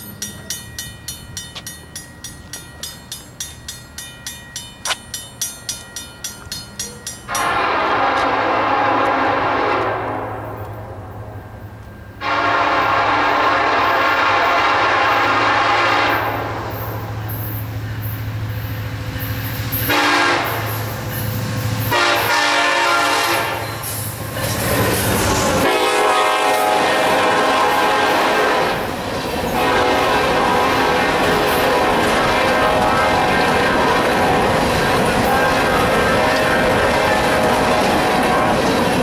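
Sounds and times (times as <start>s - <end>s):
train wheels rumbling on rails: 0.0s - 39.0s
locomotive air horn blasts: 7.3s - 11.1s, 12.2s - 17.0s, 19.9s - 20.7s, 21.9s - 23.8s, 25.6s - 28.9s, 29.5s - 34.6s, 35.3s - 38.6s.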